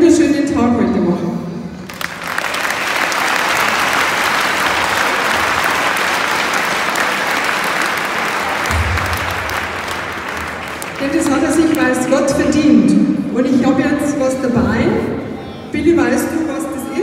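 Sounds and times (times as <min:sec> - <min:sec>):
large crowd applauding: 0:01.8 - 0:12.3.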